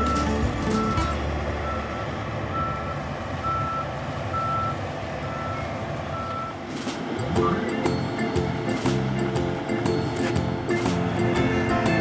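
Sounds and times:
reversing beep: 0.0 - 6.6, 7.3 - 7.9.

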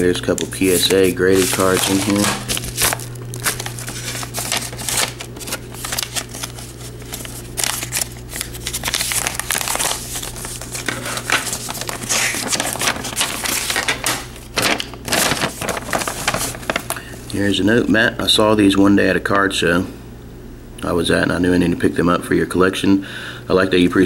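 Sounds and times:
bubble mailer crinkling: 0.3 - 17.2.

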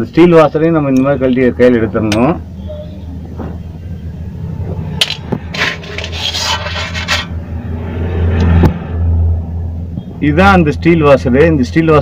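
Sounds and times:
low hum: 0.8 - 11.7
metal scraping: 5.0 - 8.7.

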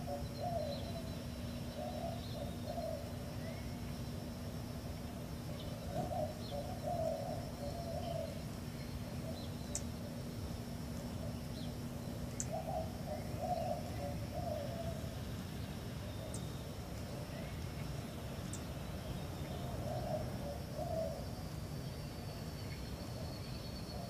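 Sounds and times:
dove cooing: 0.0 - 3.8, 5.0 - 9.9, 11.0 - 15.2, 19.5 - 21.4
low background hum: 0.0 - 24.0
small birds chirping: 0.0 - 24.0.

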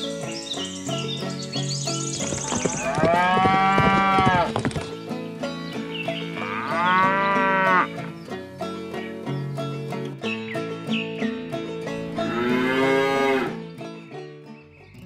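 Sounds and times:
background music: 0.0 - 15.0
cow mooing: 2.8 - 4.5, 6.4 - 8.0, 12.2 - 13.6.

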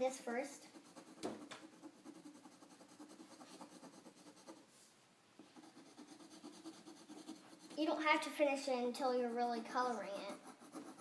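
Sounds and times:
pencil scratching on paper: 0.1 - 4.8, 5.4 - 8.3, 9.0 - 11.0.

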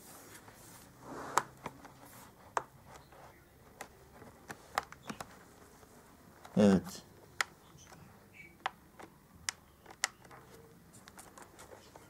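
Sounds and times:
laptop cover rubbing: 0.0 - 6.1.

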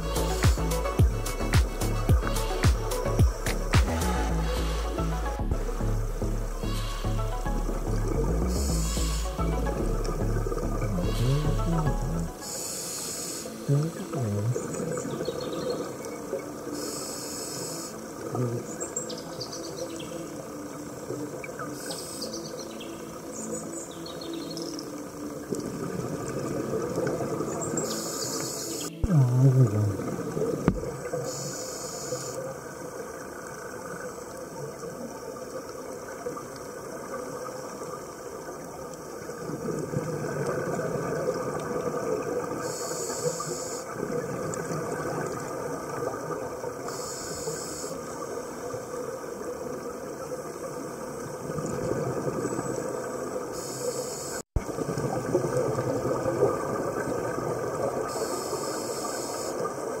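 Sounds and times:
underwater hiss and rumble: 0.0 - 60.0
scuba regulator exhalation bubbles: 29.0 - 31.1.

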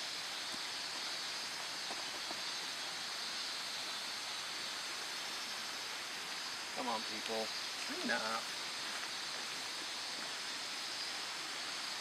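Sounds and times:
stream water rushing: 0.0 - 12.0.

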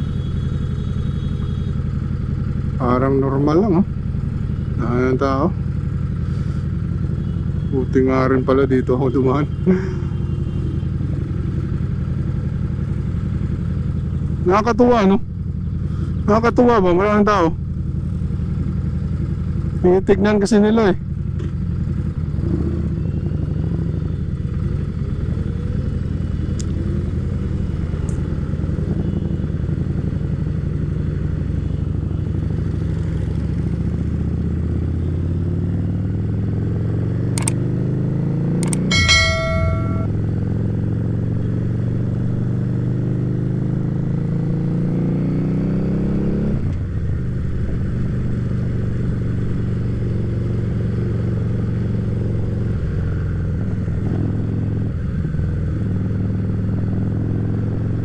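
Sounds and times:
motorcycle horn blast: 0.0 - 1.9, 38.7 - 40.2
motorcycle engine running: 0.0 - 14.6, 15.2 - 58.0
sharp click: 37.4 - 37.6, 38.6 - 40.1.

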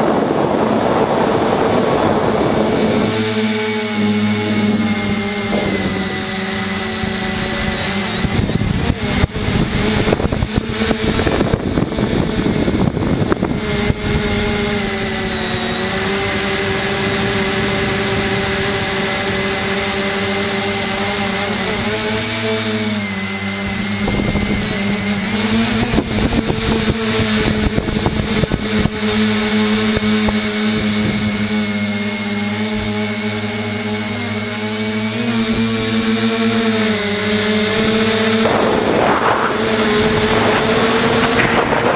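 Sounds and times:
gusty wind rushing: 0.0 - 16.1, 36.9 - 41.9
drone motors and propellers: 0.0 - 41.9.

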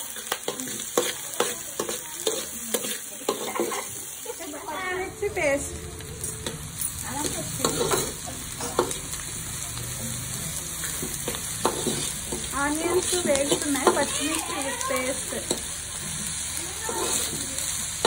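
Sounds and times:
onions sizzling in oil: 0.0 - 18.0
metal spatula scraping pan: 0.5 - 4.0.

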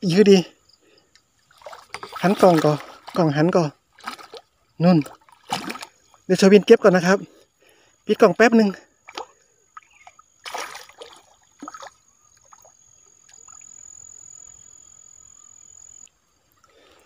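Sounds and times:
fish splashing in shallow water: 1.2 - 6.6, 8.9 - 14.7.

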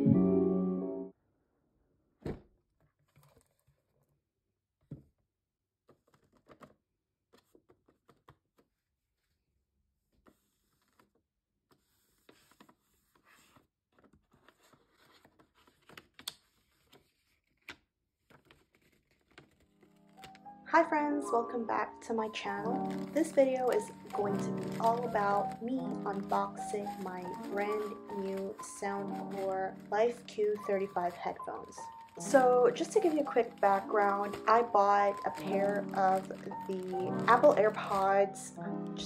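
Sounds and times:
paper rustling: 3.0 - 4.1, 10.0 - 20.6, 22.2 - 38.5.

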